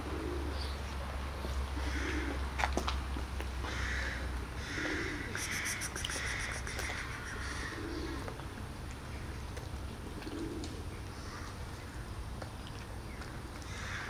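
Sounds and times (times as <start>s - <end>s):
dove cooing: 0.0s - 0.8s, 1.8s - 2.6s, 3.6s - 8.6s, 9.9s - 11.5s.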